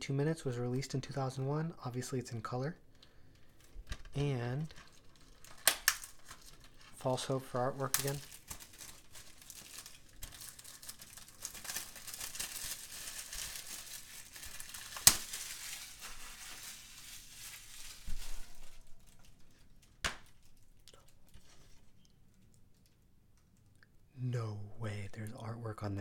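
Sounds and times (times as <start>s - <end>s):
cellophane crinkling and tearing: 2.8s - 23.6s
sharp snap: 20.0s - 20.3s.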